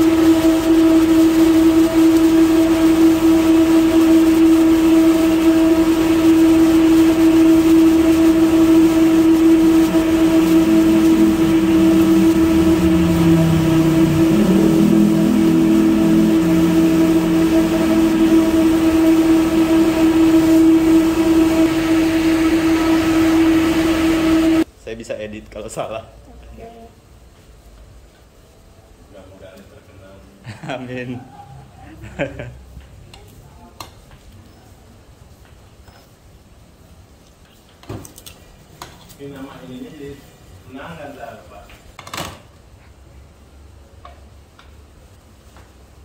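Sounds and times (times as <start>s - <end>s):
electric fan motor humming: 0.0s - 24.7s
low rumble: 0.0s - 24.7s.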